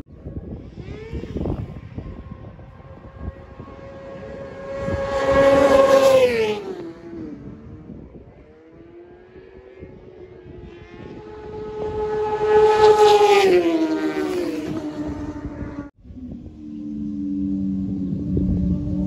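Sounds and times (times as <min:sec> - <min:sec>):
racing motorcycle passing: 0:00.0 - 0:19.0
engine note: 0:10.9 - 0:19.0.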